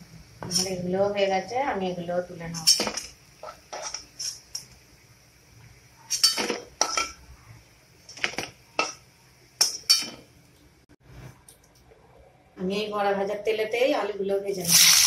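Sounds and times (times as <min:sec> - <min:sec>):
metal spatula clinking on metal: 0:06.1 - 0:07.2, 0:09.6 - 0:10.2.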